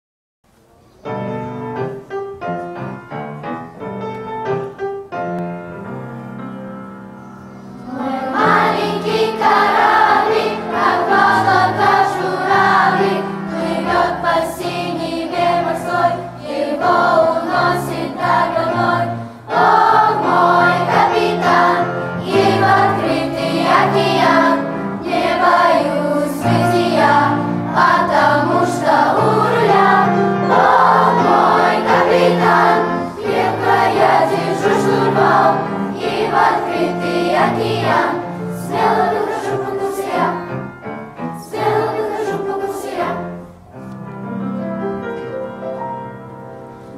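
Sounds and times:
children's choir singing: 7.6s - 43.6s.

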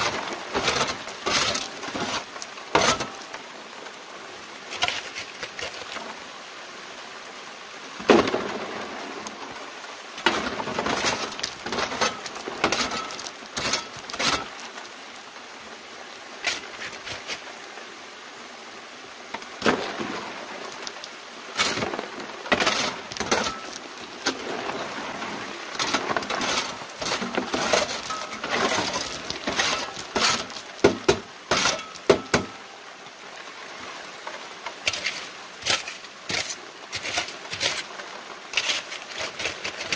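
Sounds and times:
water rushing from hose: 0.0s - 15.4s, 16.3s - 17.7s, 19.3s - 39.9s
stones clattering on metal screen: 10.2s - 14.6s, 20.7s - 24.4s, 25.8s - 32.6s, 34.9s - 37.9s.

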